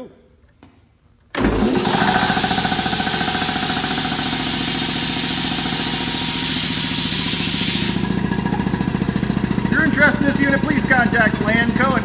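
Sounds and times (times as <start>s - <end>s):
air compressor pump pulsing: 1.4s - 12.0s
strong hiss: 1.7s - 8.3s.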